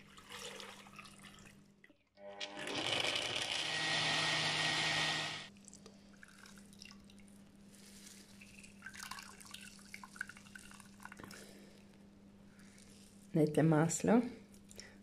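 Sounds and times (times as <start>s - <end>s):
electric blender grinding: 2.2s - 5.5s
liquid trickling and dripping into jug: 5.6s - 11.5s.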